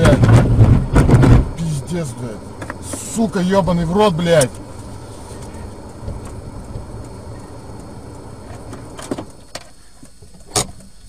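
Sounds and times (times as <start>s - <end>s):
road noise: 0.0s - 9.9s
car engine rumble: 0.0s - 11.0s.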